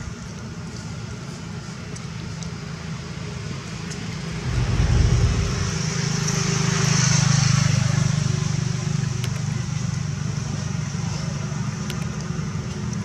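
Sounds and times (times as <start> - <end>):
vehicle engine rumble: 3.1 - 6.8.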